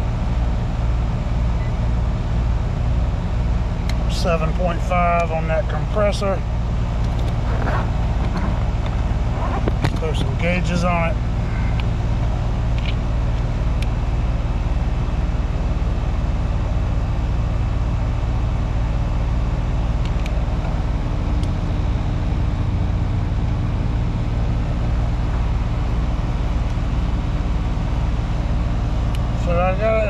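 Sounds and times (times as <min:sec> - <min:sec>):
heat pump humming: 0:00.0 - 0:30.0.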